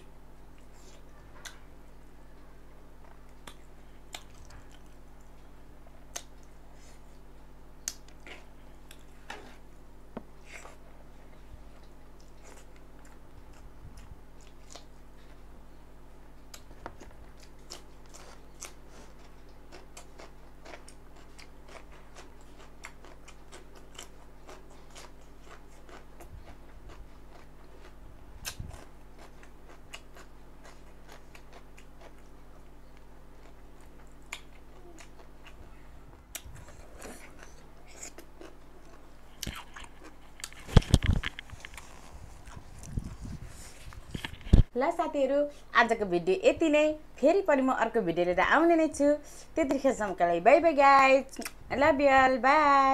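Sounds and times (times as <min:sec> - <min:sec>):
low steady hum: 0:00.0 - 0:52.9
chewing and crunching: 0:00.4 - 0:09.8, 0:10.4 - 0:15.5, 0:16.2 - 0:44.7.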